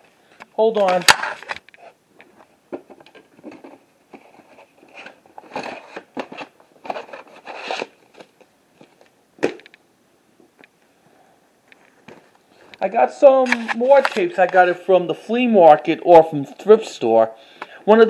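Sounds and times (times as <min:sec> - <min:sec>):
rummaging through objects: 0:01.2 - 0:09.1.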